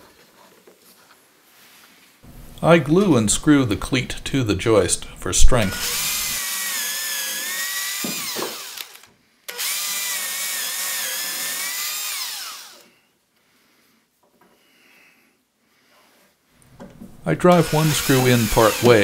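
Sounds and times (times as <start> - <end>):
power drill boring through plywood: 5.5 - 13.0, 17.4 - 19.0.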